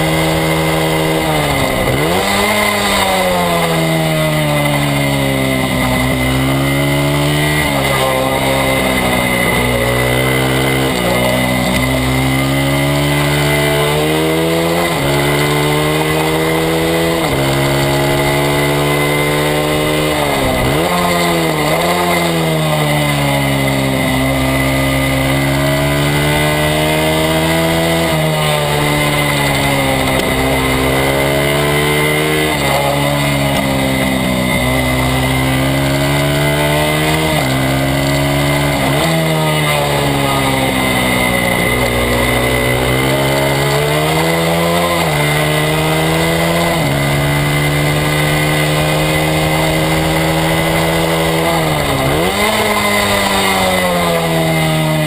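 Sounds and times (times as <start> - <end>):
motorbike engine revving: 0.0 - 55.0.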